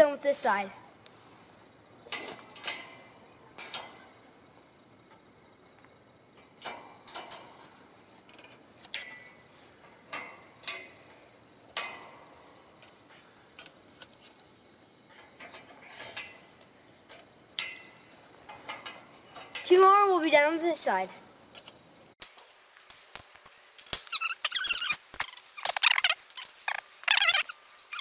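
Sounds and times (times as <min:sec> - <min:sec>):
metal springs clicking: 0:02.0 - 0:04.2, 0:06.4 - 0:13.0, 0:13.6 - 0:14.5, 0:15.1 - 0:20.0, 0:21.5 - 0:22.4.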